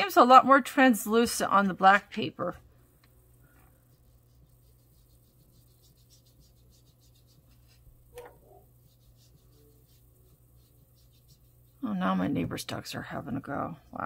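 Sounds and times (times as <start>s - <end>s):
brush scrubbing on paper: 3.7s - 12.4s.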